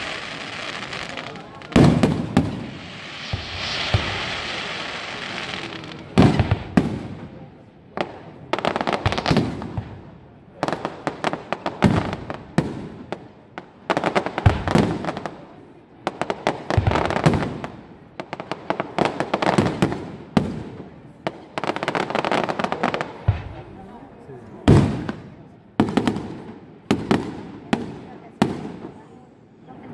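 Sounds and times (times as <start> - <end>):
firework shells bursting: 0.0 - 5.3
firework crackling: 0.0 - 29.1.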